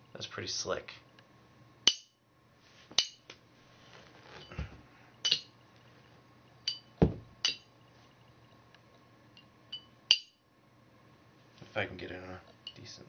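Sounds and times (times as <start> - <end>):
dull thumps: 7.0 - 7.4.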